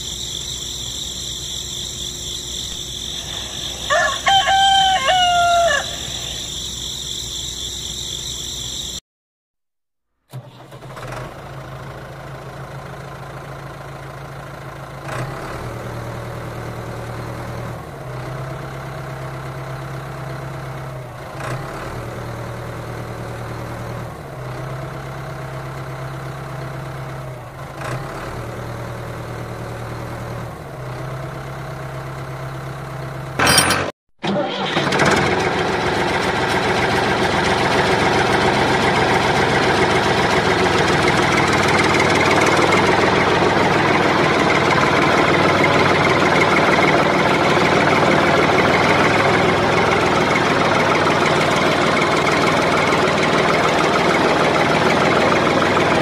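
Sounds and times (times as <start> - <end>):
tractor engine idling: 0.0 - 9.0, 34.2 - 56.0
loud engine burst: 33.4 - 56.0.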